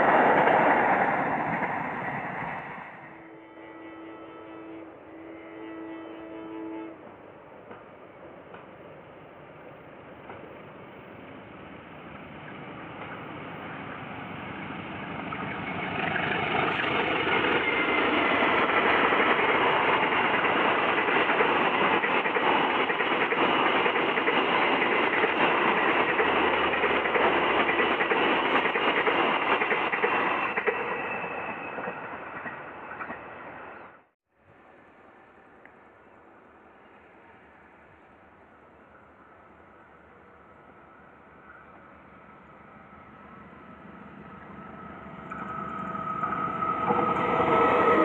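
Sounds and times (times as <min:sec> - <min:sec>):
passenger train passing: 0:00.0 - 0:48.0
wheel noise on rails: 0:09.7 - 0:33.9, 0:36.8 - 0:48.0.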